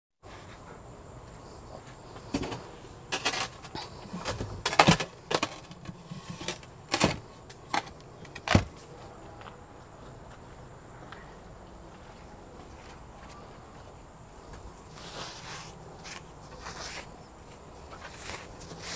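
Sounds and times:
faint background hum: 0.2s - 18.9s
planter knocking and scraping: 2.2s - 8.8s.

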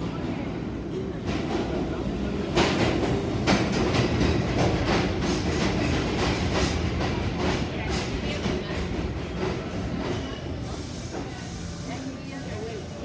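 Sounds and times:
subway train rumble: 0.0s - 13.0s
train wheels clacking over rail joints: 2.5s - 10.4s.

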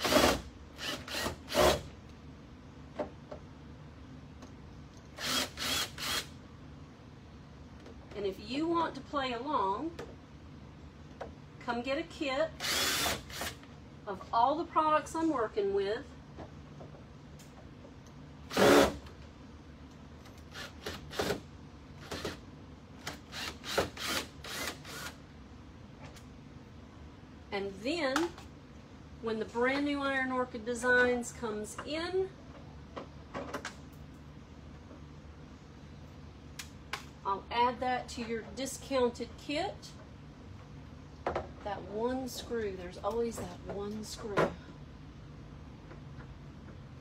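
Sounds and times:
cordless drill bursts: 0.0s - 1.8s, 5.2s - 6.3s, 12.6s - 13.6s, 18.5s - 19.0s, 23.2s - 25.2s
power drill bursts: 5.2s - 6.3s, 12.6s - 13.6s.

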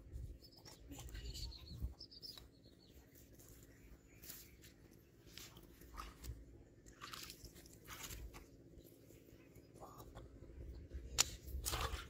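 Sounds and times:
faint bird chirps: 0.1s - 5.4s.

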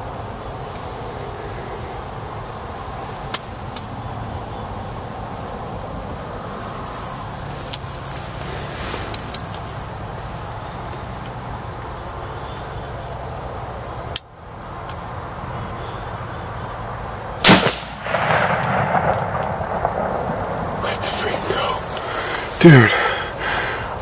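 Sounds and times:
rifle shot: 17.4s - 21.1s.

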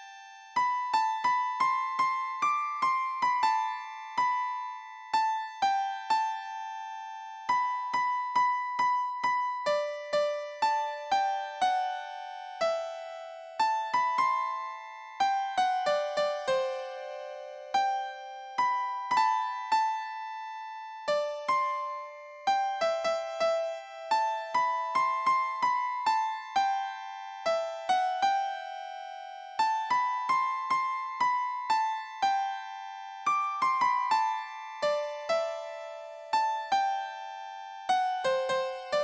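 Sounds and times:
simple keyboard melody: 0.0s - 39.0s.

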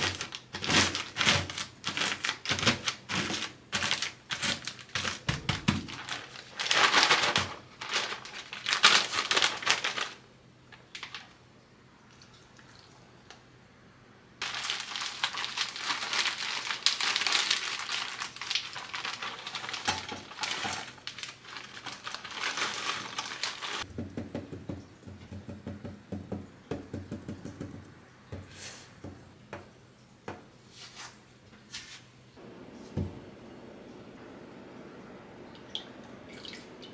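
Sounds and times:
plastic bag crinkling: 0.0s - 11.4s, 14.4s - 23.9s.

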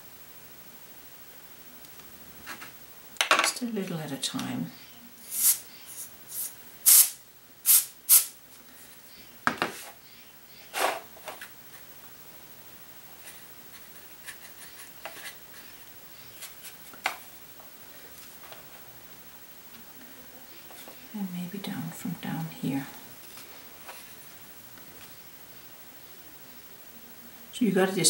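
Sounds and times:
compressed air blasts: 5.2s - 8.4s.

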